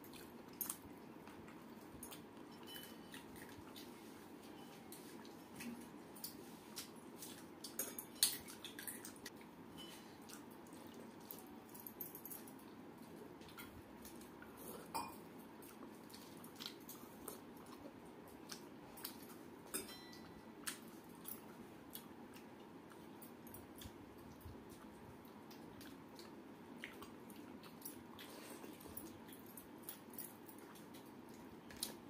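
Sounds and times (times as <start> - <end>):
metal bowl clinks: 19.7 - 20.4.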